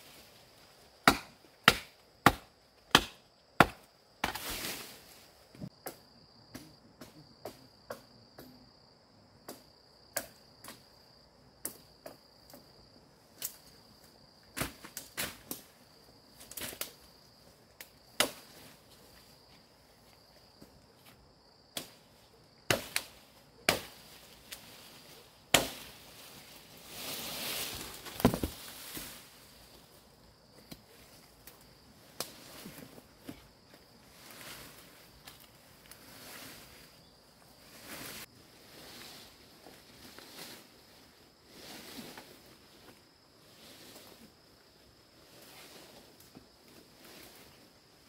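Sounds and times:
high insect trill: 0.0 - 48.0
blade chopping wood: 1.0 - 4.4, 28.0 - 28.6
long hiss: 24.2 - 29.9.

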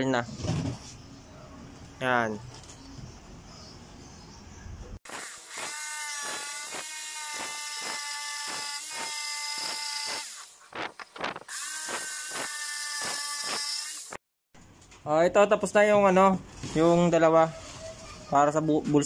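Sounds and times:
electric jigsaw cutting wood: 5.1 - 10.6, 11.2 - 14.2.

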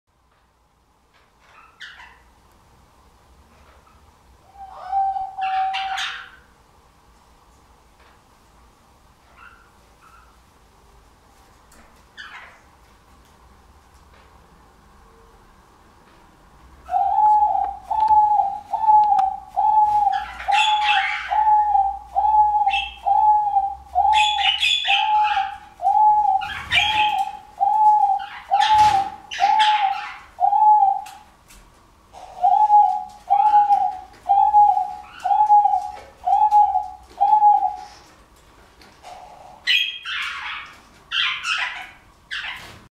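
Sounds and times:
dove cooing: 4.5 - 6.5, 16.9 - 31.2, 32.1 - 38.1.

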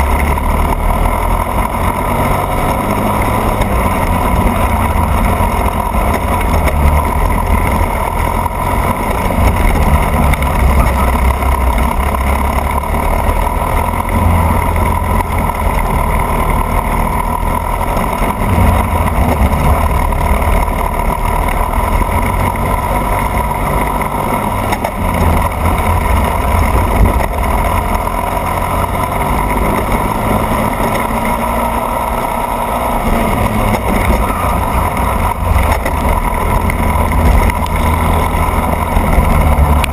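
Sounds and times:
kart engine running hard: 0.0 - 39.9.

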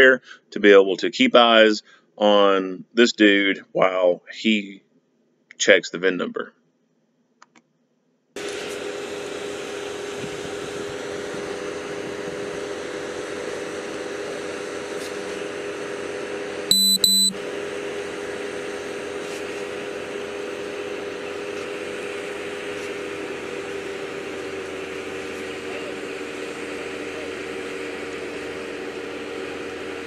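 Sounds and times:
loud electronic beeps: 16.7 - 17.4.

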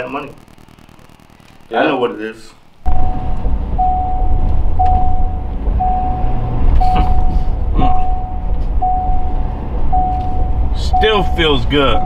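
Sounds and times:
electronic warning beep: 2.9 - 12.0
truck rumbling: 2.9 - 12.0.

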